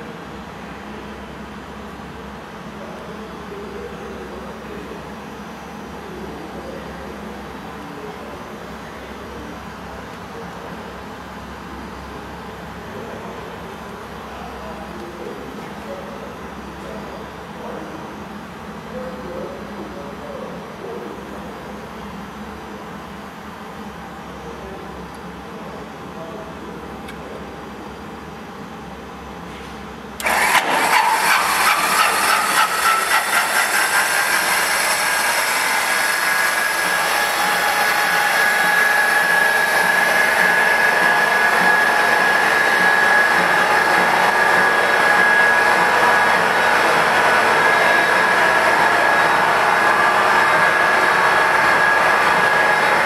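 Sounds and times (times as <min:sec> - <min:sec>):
starter motor whine: 0:30.2 - 0:53.0.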